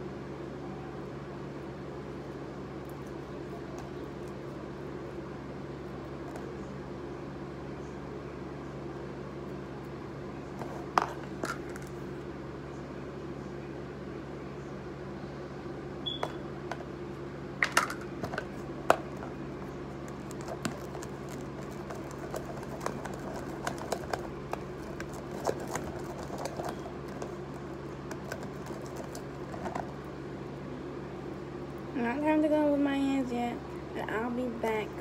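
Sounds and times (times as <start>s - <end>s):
stick stirring slime: 20.0s - 30.1s.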